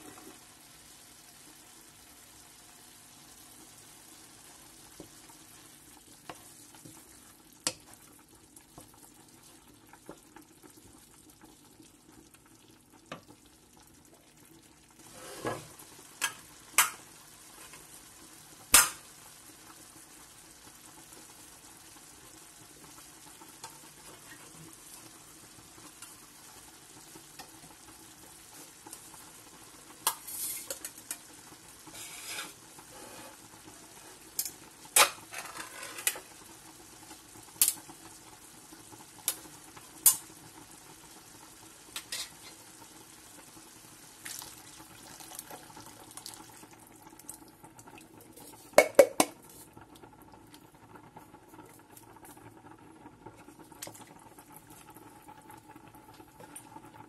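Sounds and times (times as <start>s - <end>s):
meat sizzling in a frying pan: 0.0s - 52.4s
wooden spoon knocking against pan: 48.8s - 49.4s.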